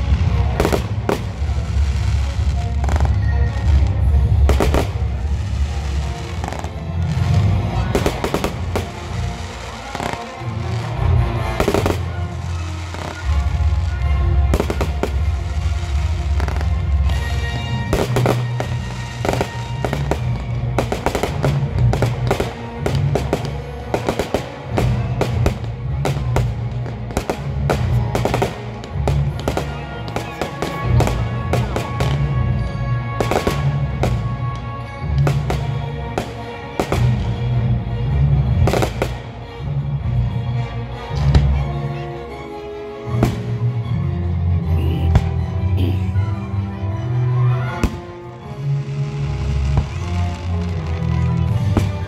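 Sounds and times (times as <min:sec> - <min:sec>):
fireworks bangs and crackles: 0:00.0 - 0:40.2, 0:43.1 - 0:43.8, 0:47.7 - 0:52.0
loud music with pulsing bass: 0:44.6 - 0:46.4.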